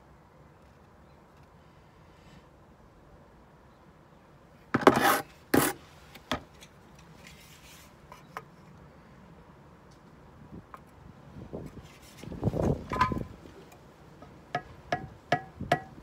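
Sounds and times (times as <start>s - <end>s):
spirit level tapping on bricks: 14.5s - 16.0s.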